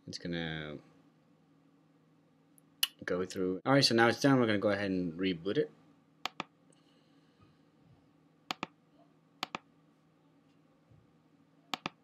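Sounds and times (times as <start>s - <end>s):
faint room hum: 0.0s - 12.0s
mouse button clicks: 11.7s - 12.0s.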